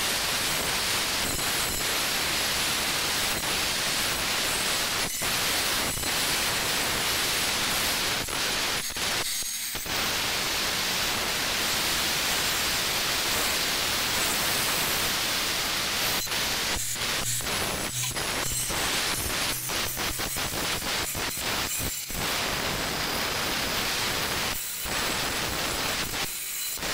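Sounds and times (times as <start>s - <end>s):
angle grinder grinding stone: 12.1s - 26.9s.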